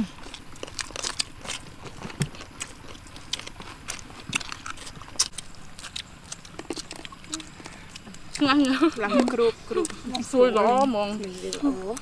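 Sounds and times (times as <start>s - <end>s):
people chewing and lip smacking: 0.0s - 12.0s.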